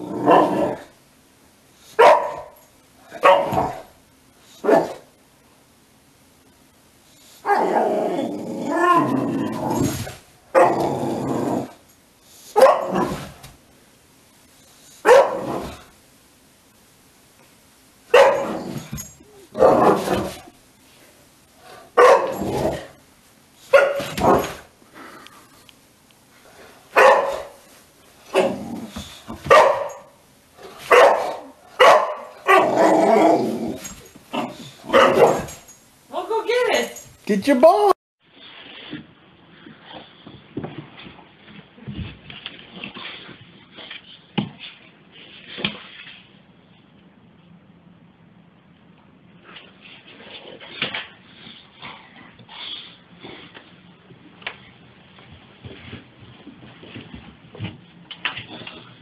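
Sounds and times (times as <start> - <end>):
dog barking: 2.0 - 2.6, 3.2 - 3.8, 12.6 - 13.1, 15.0 - 15.5, 18.1 - 18.5, 22.0 - 22.4, 23.7 - 24.4, 27.0 - 27.6, 29.5 - 30.1, 30.9 - 32.7, 34.9 - 35.5.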